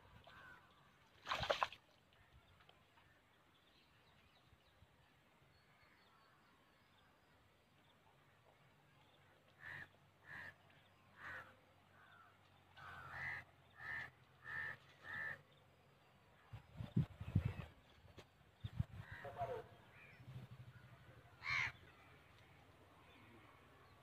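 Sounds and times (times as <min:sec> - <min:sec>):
crow cawing: 0:11.2 - 0:12.2, 0:12.8 - 0:15.4, 0:21.4 - 0:21.8.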